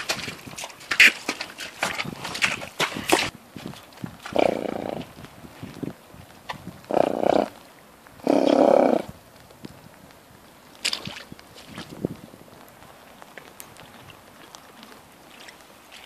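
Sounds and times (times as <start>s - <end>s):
horse blowing through nostrils: 4.2s - 5.1s, 6.9s - 7.6s, 8.2s - 9.1s.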